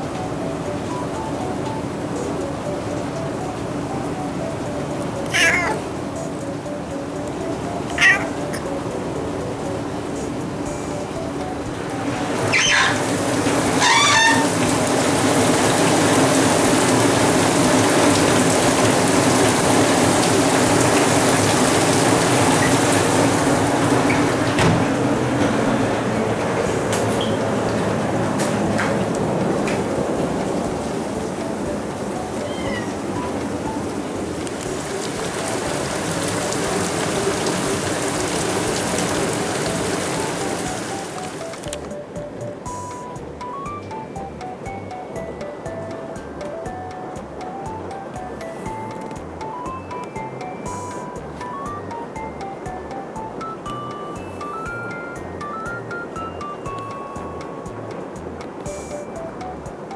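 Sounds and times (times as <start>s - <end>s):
rain falling: 0.0s - 59.9s
short wavering call: 5.2s - 6.4s, 7.6s - 8.9s, 12.4s - 13.1s, 13.7s - 14.7s, 32.0s - 33.7s.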